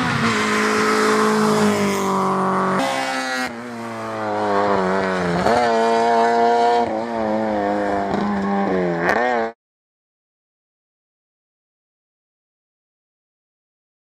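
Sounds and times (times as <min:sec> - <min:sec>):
rally car engine at high revs: 0:00.0 - 0:09.6.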